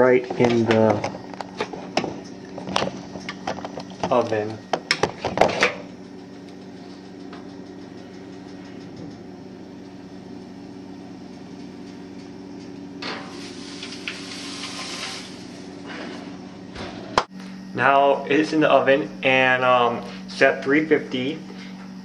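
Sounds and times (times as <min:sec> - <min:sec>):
steady low hum: 0:00.0 - 0:22.0
hiss of oven controls: 0:13.0 - 0:16.2
oven door shutting: 0:13.0 - 0:17.2.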